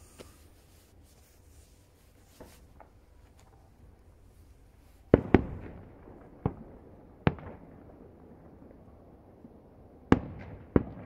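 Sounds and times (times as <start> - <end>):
distant firework bangs with echo: 5.1 - 8.8, 10.1 - 11.0.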